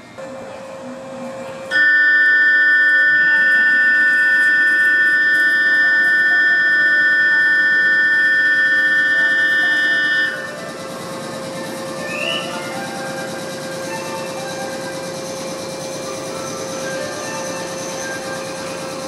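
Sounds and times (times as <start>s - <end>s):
rattling electric bell ringing: 1.7s - 19.0s.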